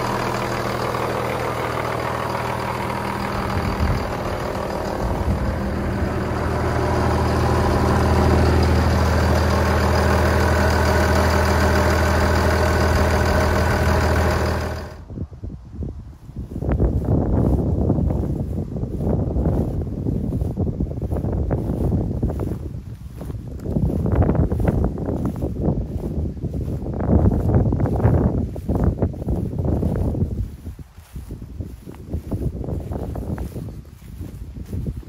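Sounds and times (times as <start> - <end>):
diesel engine idling: 0.0 - 15.2.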